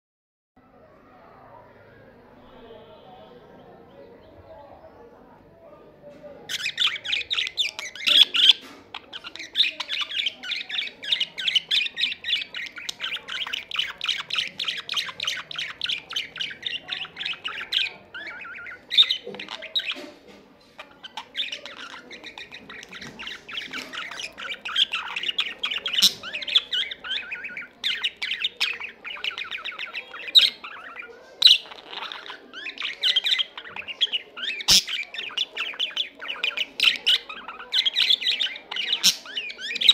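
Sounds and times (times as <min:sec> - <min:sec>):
budgerigar warbling: 0:06.5 - 0:20.1, 0:20.8 - 0:39.9
budgerigar squawks: 0:20.8 - 0:39.9.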